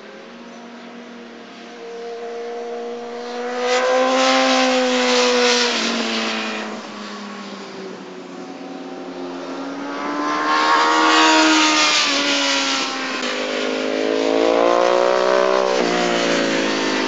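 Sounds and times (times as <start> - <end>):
motorcycle engine passing by: 1.8 - 7.4, 9.6 - 17.0.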